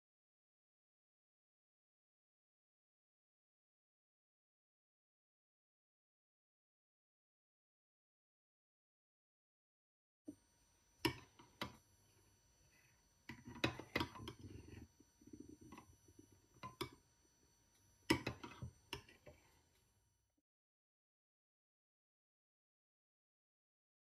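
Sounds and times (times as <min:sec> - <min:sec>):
soft stirring of soup: 0:10.3 - 0:20.1
metal spoon clinking on ceramic bowl: 0:18.1 - 0:19.1.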